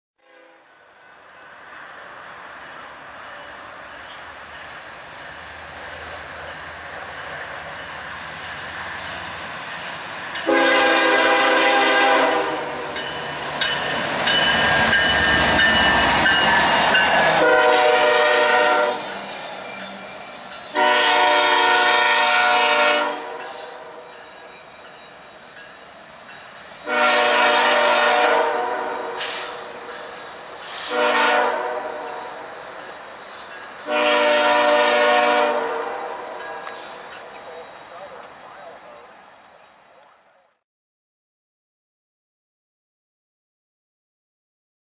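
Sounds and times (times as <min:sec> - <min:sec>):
locomotive horn blasts: 0:00.2 - 0:00.7, 0:10.4 - 0:13.0, 0:17.3 - 0:19.2, 0:20.7 - 0:24.1, 0:26.8 - 0:29.4, 0:30.9 - 0:32.4, 0:33.8 - 0:36.2.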